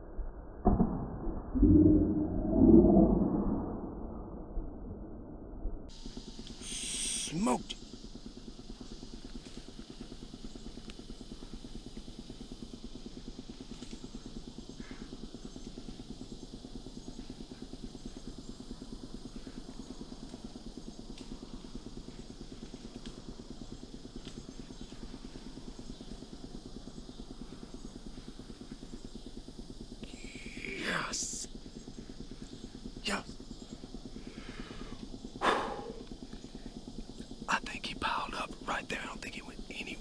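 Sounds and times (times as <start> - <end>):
low rumble: 0.5 - 6.0
high hiss: 5.9 - 13.7, 27.5 - 31.6
faint ticks: 5.9 - 30.6.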